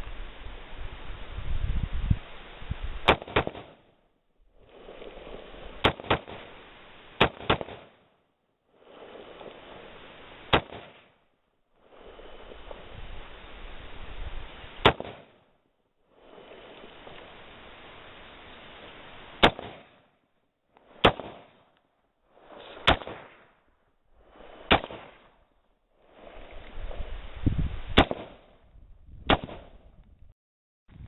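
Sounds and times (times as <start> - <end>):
rifle shots: 3.0 - 3.8, 5.8 - 6.6, 7.2 - 8.1, 10.5 - 11.1, 14.8 - 15.4, 19.4 - 20.0, 21.0 - 21.6, 22.8 - 23.5, 24.7 - 25.2, 28.0 - 28.4, 29.3 - 29.8.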